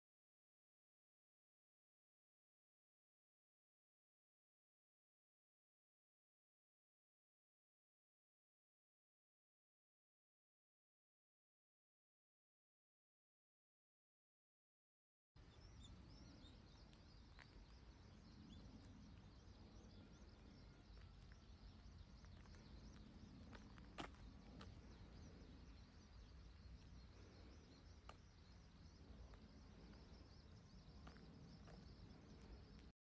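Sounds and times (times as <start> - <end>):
distant birds chirping: 15.4 - 33.0.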